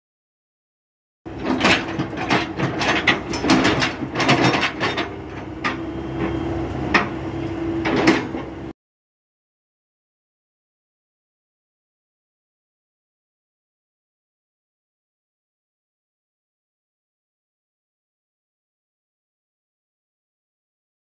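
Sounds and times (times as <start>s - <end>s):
metallic clanks and knocks: 1.3s - 7.2s, 7.8s - 8.6s
excavator engine hum: 1.3s - 8.8s.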